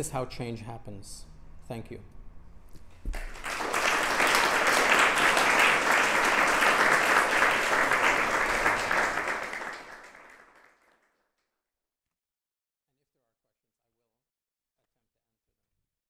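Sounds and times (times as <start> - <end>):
audience applauding: 3.1 - 11.1.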